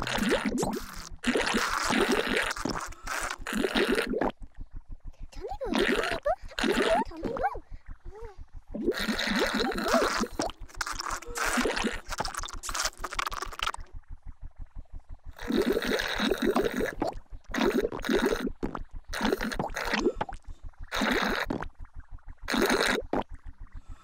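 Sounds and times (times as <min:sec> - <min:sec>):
comic slurping and gurgling: 0:00.0 - 0:04.4, 0:05.4 - 0:07.6, 0:08.7 - 0:13.9, 0:15.4 - 0:21.7, 0:22.5 - 0:23.3
soft quick low pulse: 0:00.0 - 0:12.8.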